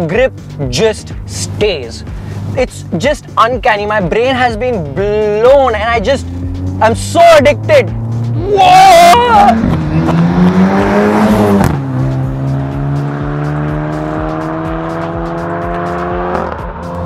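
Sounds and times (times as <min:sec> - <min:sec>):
car engine accelerating: 0:04.6 - 0:17.0.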